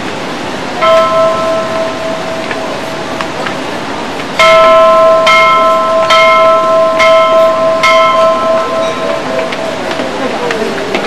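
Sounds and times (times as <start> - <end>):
brass temple bell struck: 0.8 - 2.9, 4.4 - 9.6.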